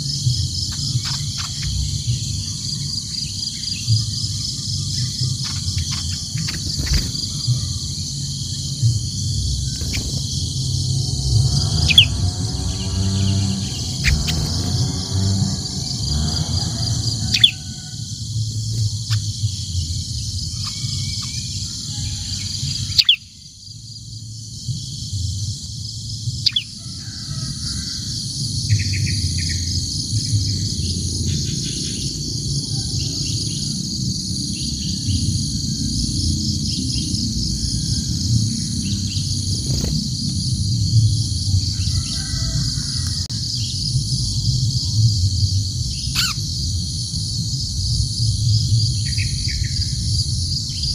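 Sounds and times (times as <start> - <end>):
trilling insect chorus: 0.0 - 50.9
low rumble: 5.0 - 21.2.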